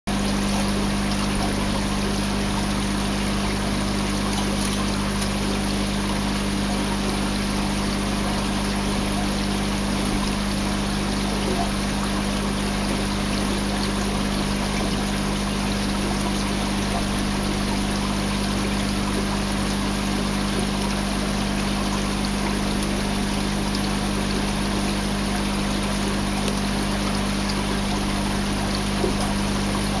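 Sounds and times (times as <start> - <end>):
water rushing: 0.1 - 30.0.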